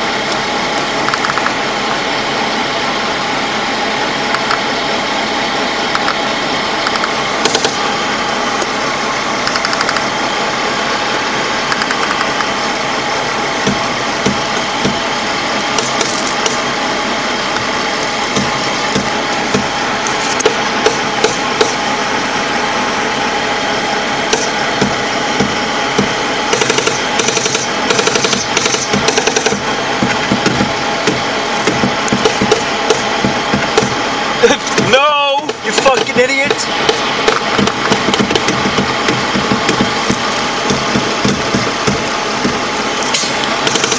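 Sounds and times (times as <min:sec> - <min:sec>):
heavy diesel engine running: 0:00.0 - 0:43.9
sharp knocks and rattles: 0:36.8 - 0:43.9.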